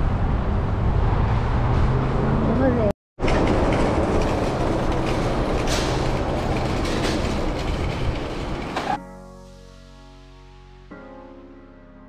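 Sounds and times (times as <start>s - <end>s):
traffic: 0.0s - 9.0s.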